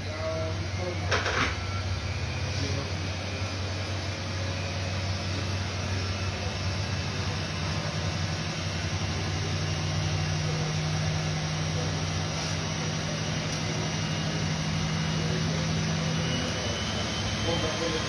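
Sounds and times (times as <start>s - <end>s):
washing machine motor hum: 0.0s - 18.0s.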